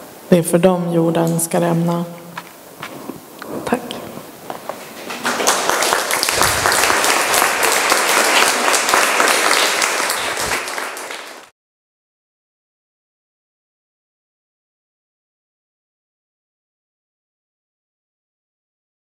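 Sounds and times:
audience applauding: 5.1 - 11.5.

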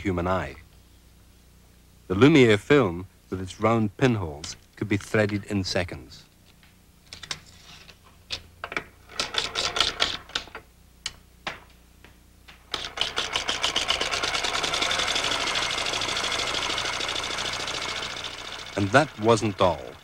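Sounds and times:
hand-cranked projector clatter: 12.7 - 20.0.

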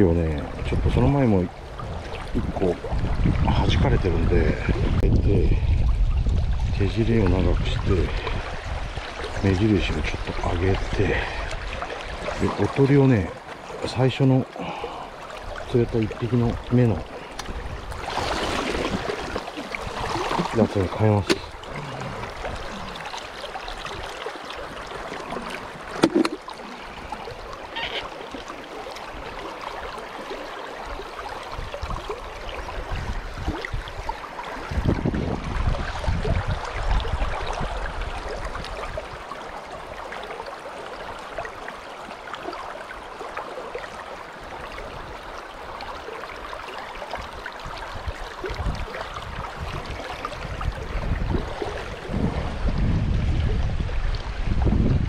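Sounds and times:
wind rumble on microphone: 0.0 - 12.5, 30.9 - 39.9, 47.1 - 55.0
river current rushing: 7.5 - 54.5.

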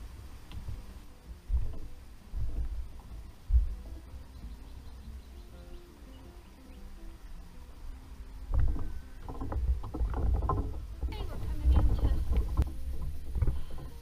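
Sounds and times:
low rumble: 0.0 - 14.0
plastic kayak knocks and clatter: 8.5 - 14.0.

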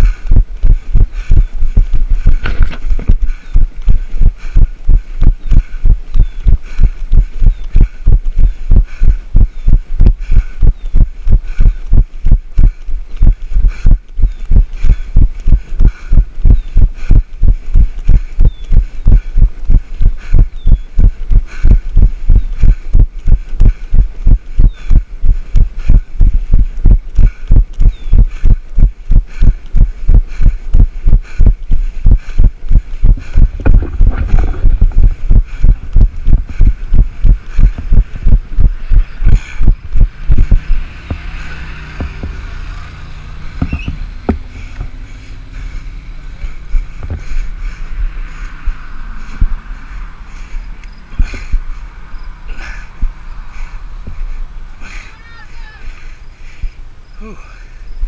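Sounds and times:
running footfalls thudding: 0.0 - 4.0, 32.1 - 42.4, 43.6 - 44.9
low steady rumble: 0.0 - 58.0
knocks: 41.0 - 41.4, 42.0 - 42.4, 43.6 - 44.9.

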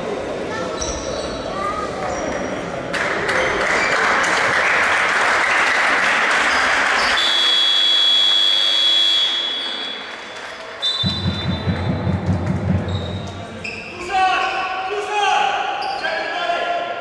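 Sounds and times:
crowd cheering and applauding: 3.0 - 7.3, 9.2 - 12.7
shrill whistle-like tone: 7.1 - 10.2, 10.8 - 11.8
low repeated thuds: 11.0 - 13.3.

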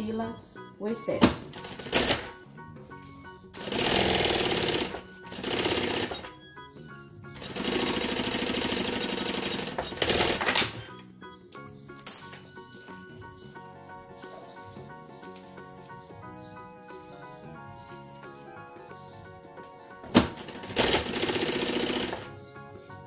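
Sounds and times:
background music: 0.0 - 23.0
sewing machine stitching: 3.6 - 6.3, 7.4 - 10.8, 20.2 - 22.3.

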